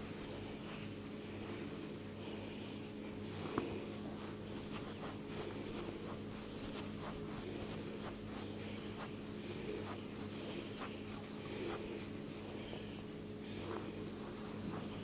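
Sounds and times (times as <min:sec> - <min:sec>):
low electrical hum: 0:00.0 - 0:15.0
hands scratching through hair: 0:03.4 - 0:15.0.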